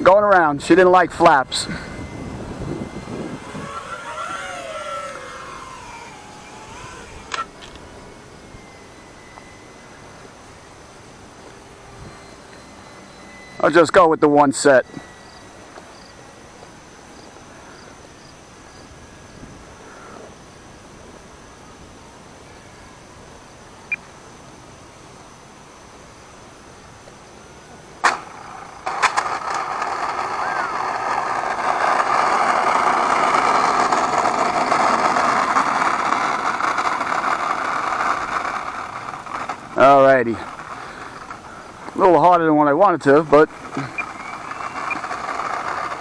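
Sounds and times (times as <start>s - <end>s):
model plane electric motor hum: 0.9s - 23.9s, 27.0s - 46.0s
insect chirping: 1.6s - 28.0s, 43.5s - 45.7s.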